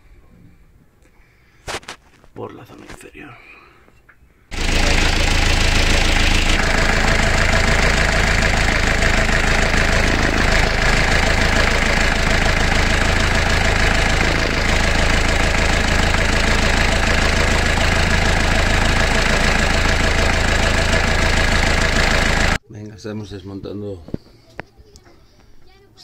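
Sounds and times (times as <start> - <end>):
boat engine idling: 4.5 - 22.6.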